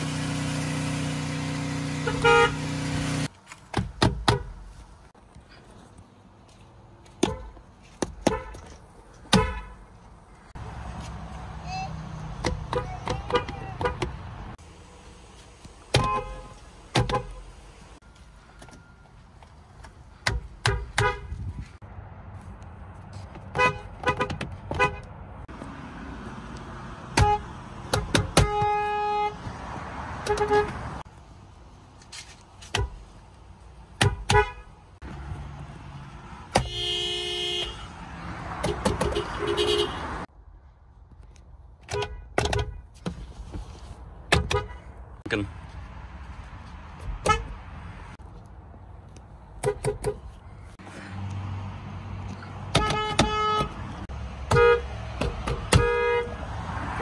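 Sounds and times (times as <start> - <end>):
car horns honking: 0.4 - 3.3, 8.2 - 9.9, 12.5 - 14.3, 15.9 - 17.9, 20.6 - 21.5, 23.5 - 25.2, 27.0 - 31.0, 34.0 - 34.8, 36.5 - 40.3, 41.8 - 43.0, 44.3 - 44.9, 47.2 - 47.7, 49.6 - 50.4, 52.6 - 56.4.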